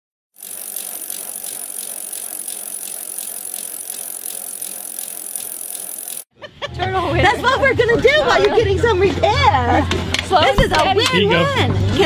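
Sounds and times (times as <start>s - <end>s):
bicycle freewheels ticking: 0.4s - 6.3s.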